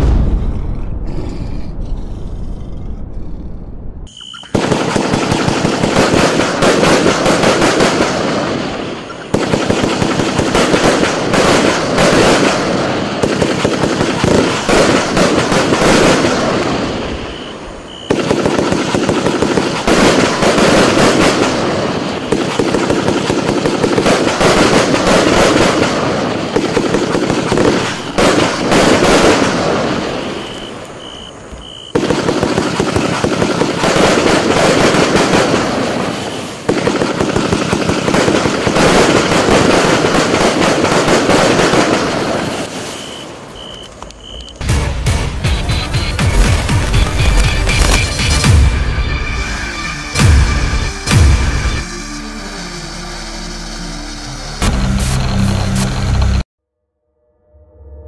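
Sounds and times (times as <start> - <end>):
fireworks barrage: 0.0 - 56.4
logo sound effect: 44.6 - 56.4.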